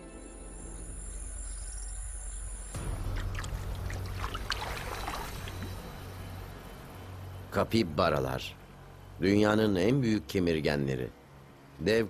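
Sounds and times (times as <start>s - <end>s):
background music: 0.0s - 1.6s, 2.7s - 7.9s
steady low hum: 0.0s - 12.0s
water splashing and sloshing: 2.8s - 6.6s.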